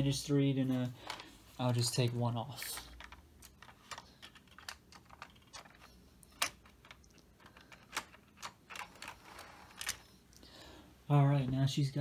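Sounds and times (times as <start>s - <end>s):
plastic model coaches clicking: 1.8s - 10.0s.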